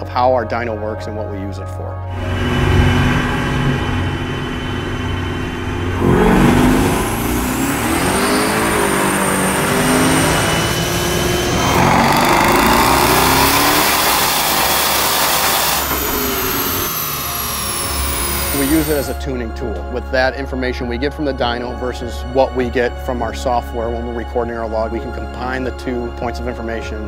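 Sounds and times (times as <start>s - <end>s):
car engine revving on dynamometer: 2.2s - 19.2s.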